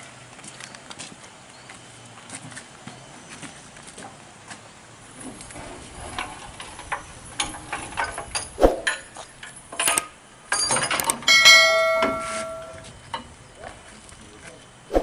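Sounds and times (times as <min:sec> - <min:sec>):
steel ramps clanking and rattling: 0:05.2 - 0:13.4
loud ringing metal clang: 0:10.6 - 0:12.9.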